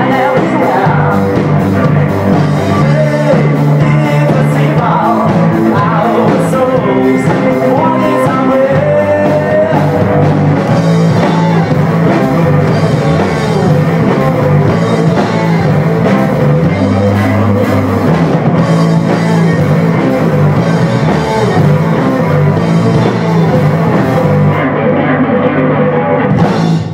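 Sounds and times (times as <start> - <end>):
driving bass line: 0.0 - 26.9
funk-rock band playing: 0.0 - 26.9.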